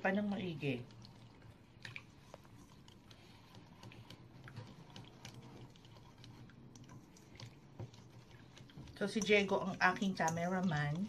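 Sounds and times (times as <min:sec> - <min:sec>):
whisk clicking in bowl: 0:02.3 - 0:11.0.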